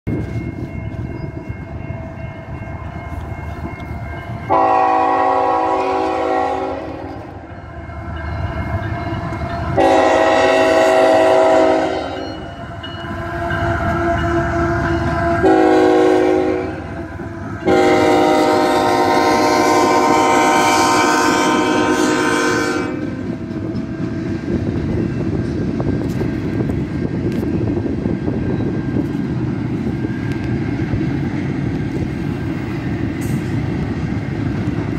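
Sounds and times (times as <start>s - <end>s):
train wheels rumbling: 0.0s - 34.9s
locomotive engines rumbling: 0.1s - 34.9s
locomotive air horn: 4.5s - 7.5s, 9.7s - 12.6s, 13.3s - 23.2s.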